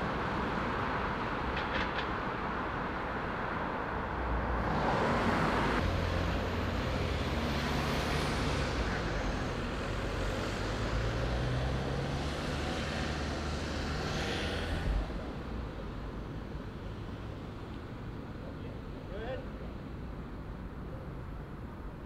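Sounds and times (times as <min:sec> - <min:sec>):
vehicle passing: 0:04.2 - 0:15.5.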